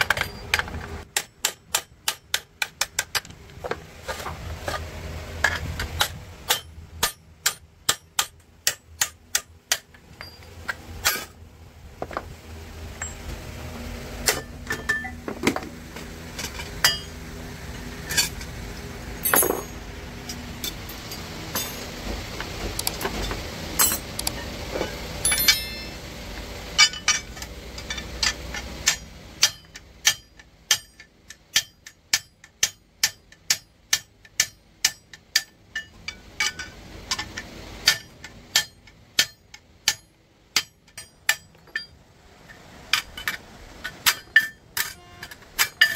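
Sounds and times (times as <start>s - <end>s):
low steady hum: 0.0s - 45.9s.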